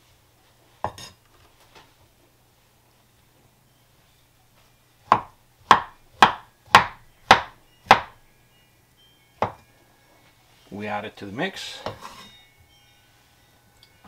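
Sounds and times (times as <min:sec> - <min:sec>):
knife chopping on wooden board: 0:05.1 - 0:08.2, 0:09.4 - 0:09.6.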